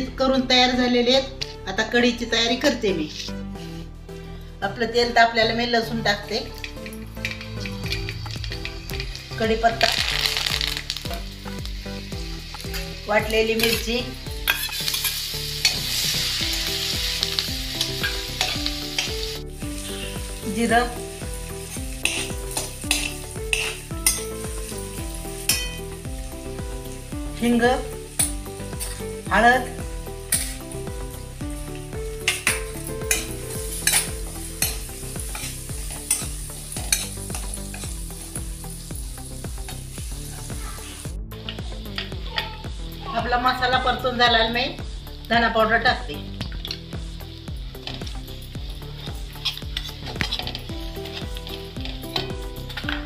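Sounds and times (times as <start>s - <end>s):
paste sizzling in hot oil: 6.5s - 43.1s, 46.1s - 53.0s
metal spatula scraping a pan: 12.4s - 25.9s, 27.5s - 30.7s, 32.2s - 38.4s, 49.0s - 52.4s
spoon scraping metal pan: 13.6s - 16.1s, 22.0s - 24.8s, 32.2s - 38.3s.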